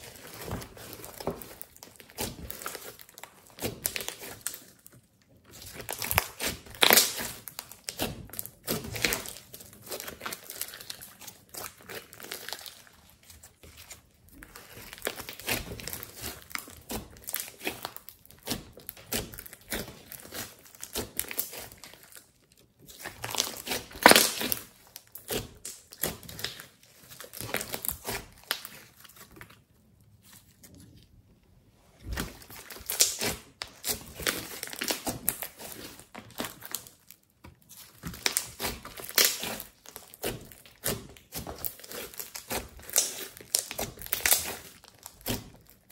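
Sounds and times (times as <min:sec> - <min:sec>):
hands squelching sticky slime: 0:00.0 - 0:45.9.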